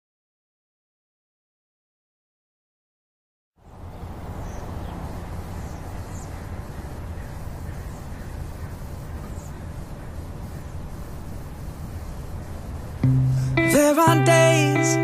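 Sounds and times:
faint bird chirps: 3.6 - 13.0
outdoor rumble and hiss: 3.6 - 15.0.

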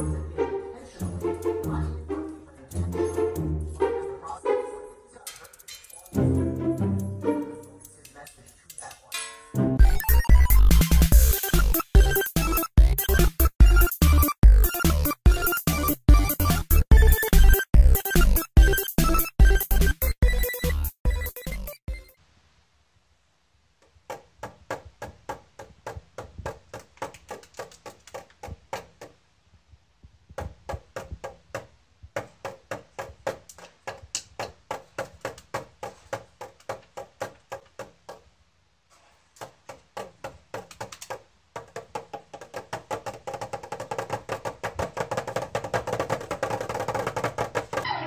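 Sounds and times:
toy snare drum taps: 24.1 - 29.2, 30.4 - 38.3, 39.4 - 47.9.

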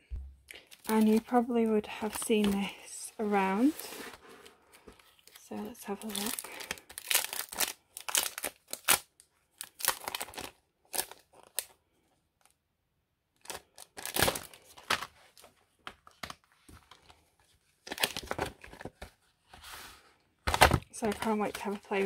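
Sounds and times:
plastic packaging crinkling: 0.5 - 2.8, 3.6 - 11.8, 13.4 - 17.2, 17.8 - 19.0.

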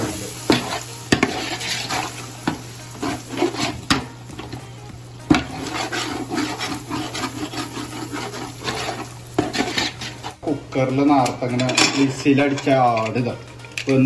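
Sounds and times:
ladle scraping a pot: 0.5 - 4.5, 5.3 - 10.4.

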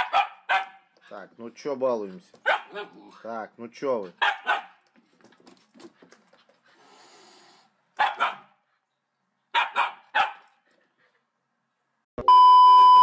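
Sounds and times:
puppy barking: 0.0 - 0.9, 2.4 - 3.1, 4.2 - 4.8, 8.0 - 8.6, 9.5 - 10.5.

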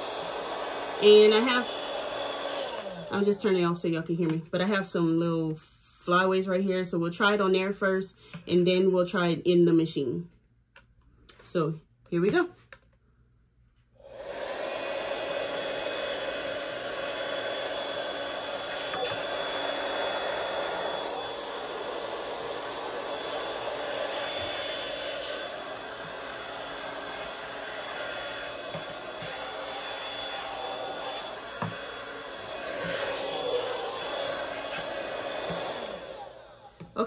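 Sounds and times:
mini vacuum motor whirring: 0.0 - 3.6, 14.0 - 37.0.

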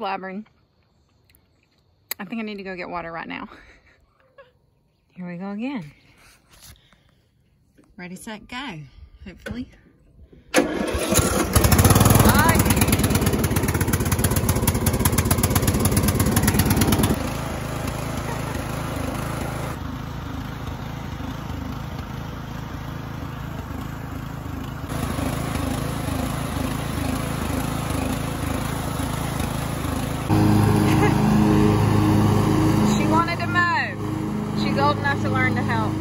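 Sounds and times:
lawn mower engine running: 10.5 - 36.0.

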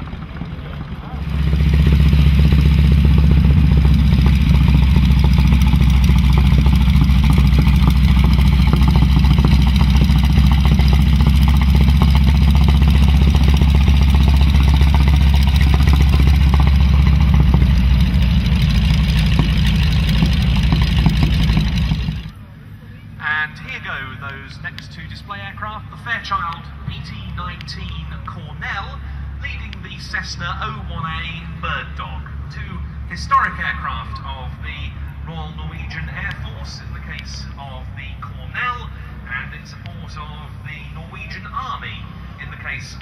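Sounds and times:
propeller plane engine droning: 0.0 - 43.0.

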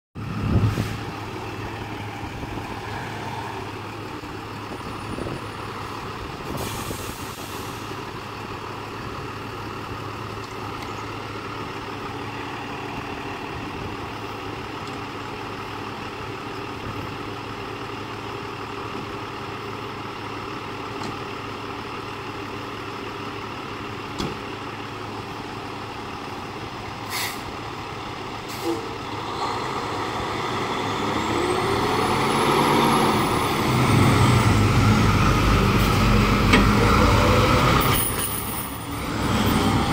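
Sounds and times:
diesel truck engine running: 0.2 - 39.9
air brakes hissing: 6.5 - 8.0, 27.0 - 27.5, 28.5 - 29.0.

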